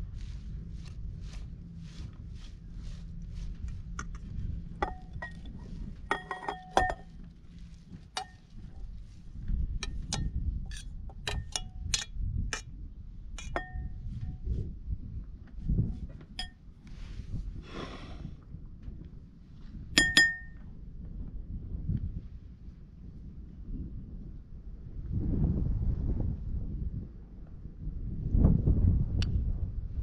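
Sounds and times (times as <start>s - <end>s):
rustling stirring strokes: 0.0s - 10.8s
spoon clinking against bowls: 6.1s - 7.1s, 13.4s - 13.9s, 20.0s - 20.6s.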